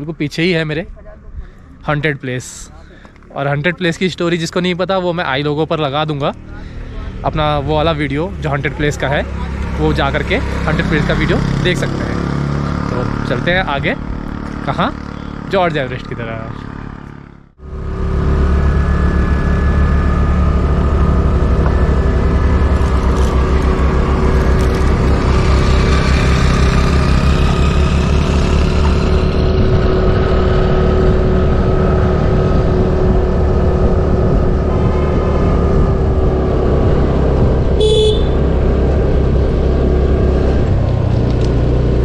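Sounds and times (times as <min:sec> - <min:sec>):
scooter engine running: 0:06.0 - 0:42.0
wind rumble on microphone: 0:21.2 - 0:42.0
scooter horn toot: 0:37.8 - 0:38.5.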